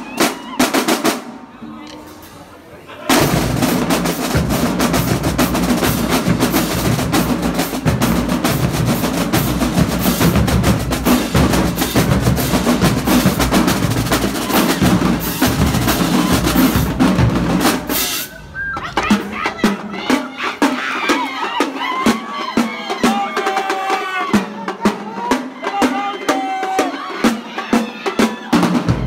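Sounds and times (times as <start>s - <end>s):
marching snare drumline: 0.0s - 1.4s, 3.1s - 29.0s.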